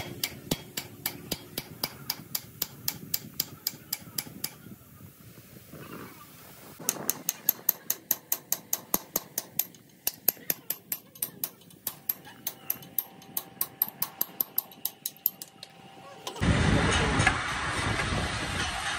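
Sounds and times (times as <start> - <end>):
metal-on-metal taps: 6.8 - 16.4.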